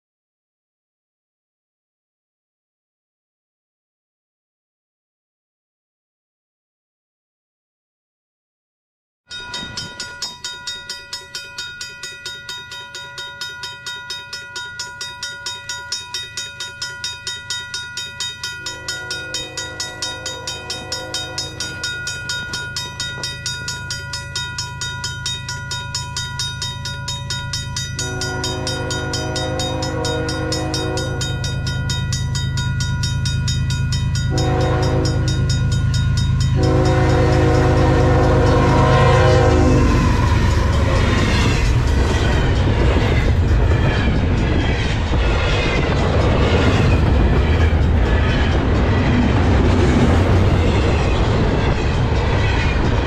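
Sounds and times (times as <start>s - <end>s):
level crossing bell dinging: 9.3s - 39.5s
train low rumble: 11.5s - 53.0s
train air horn blasts: 18.8s - 21.9s, 28.0s - 31.6s, 34.3s - 35.5s, 36.5s - 40.8s.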